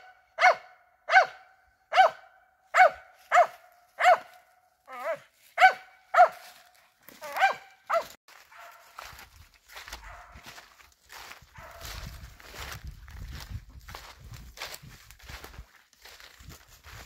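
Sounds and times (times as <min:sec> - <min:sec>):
dog barking: 0:00.0 - 0:12.6.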